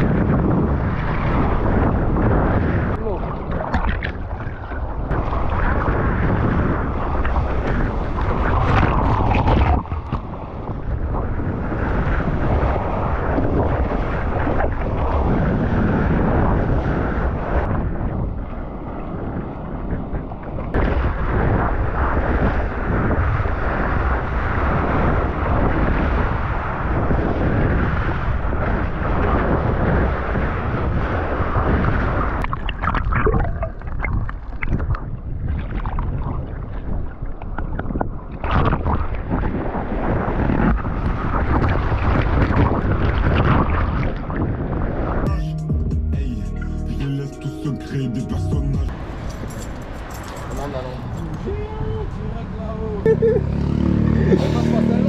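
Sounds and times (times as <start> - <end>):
surf water rushing: 0.0 - 19.9, 48.9 - 55.0
wind buffeting microphone: 0.0 - 45.3, 48.9 - 55.0
water splashes: 0.7 - 17.7, 30.5 - 45.2.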